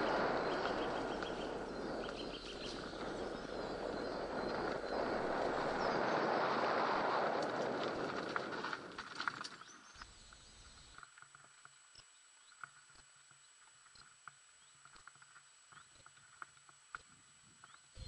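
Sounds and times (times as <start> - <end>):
wind rushing: 0.0 - 8.9
bike tyre rolling: 0.0 - 11.4
faint irregular clicks: 7.3 - 17.9.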